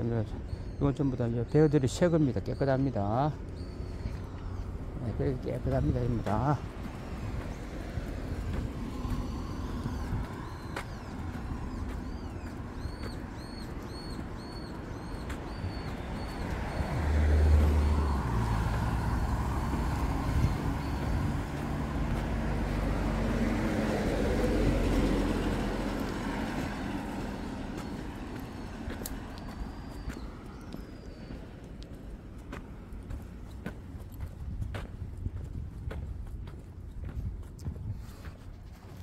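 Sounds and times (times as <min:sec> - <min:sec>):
bird chirping: 0:00.0 - 0:23.1, 0:24.0 - 0:33.2
vehicles passing on road: 0:00.0 - 0:39.0.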